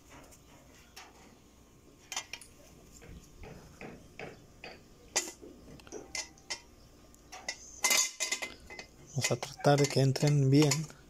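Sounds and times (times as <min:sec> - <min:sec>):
metal bracket clinking and knocking: 0:02.1 - 0:06.7, 0:07.3 - 0:10.9.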